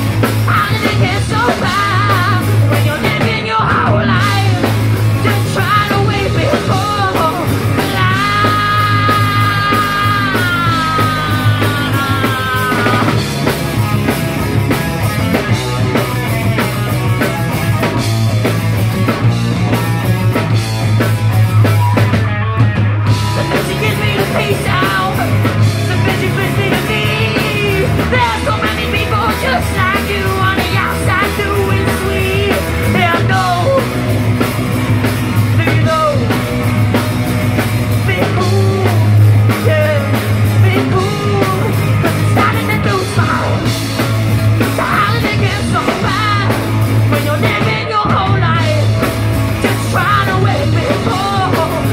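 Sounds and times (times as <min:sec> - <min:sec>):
live rock band playing: 0:00.0 - 0:51.9
person singing: 0:00.3 - 0:13.3, 0:23.2 - 0:34.2, 0:35.4 - 0:36.7, 0:37.9 - 0:43.8, 0:44.6 - 0:51.9.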